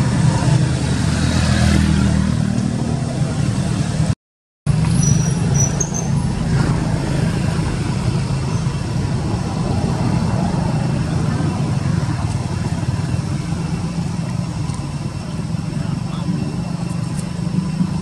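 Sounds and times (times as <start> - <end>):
motor engine humming: 6.2 - 18.0.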